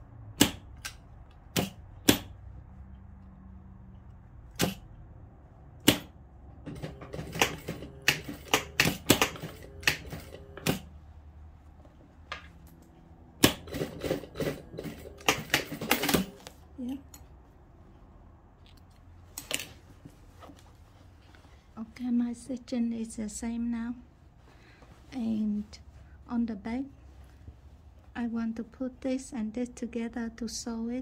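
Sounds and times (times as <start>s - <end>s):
faint low motor hum: 0.0s - 31.0s
sewing machine clicking: 6.7s - 10.9s, 13.4s - 16.5s.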